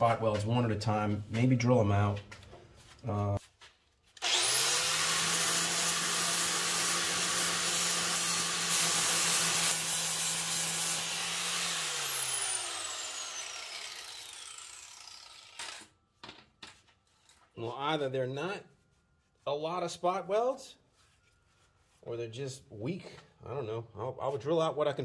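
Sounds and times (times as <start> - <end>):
angle grinder on sheet metal: 4.2 - 16.0.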